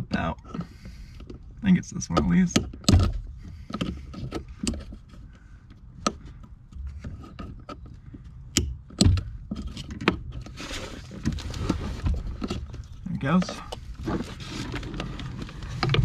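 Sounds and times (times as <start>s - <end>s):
plastic connector clicks and knocks: 2.1s - 4.9s
rustling: 9.6s - 16.0s.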